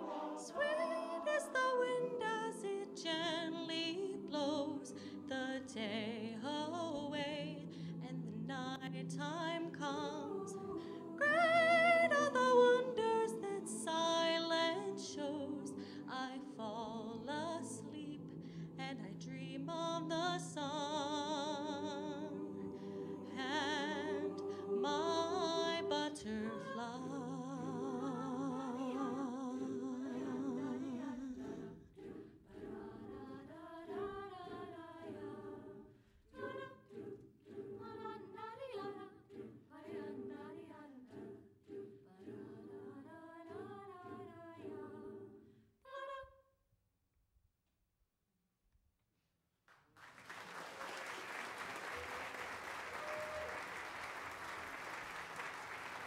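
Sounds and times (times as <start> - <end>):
choir singing: 0.0 - 46.3, 52.0 - 56.0.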